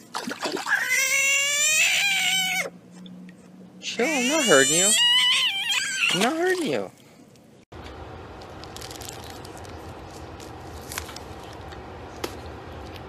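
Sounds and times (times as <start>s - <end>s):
faint crackles and rustles: 6.9s - 13.0s
low hum: 7.2s - 13.0s.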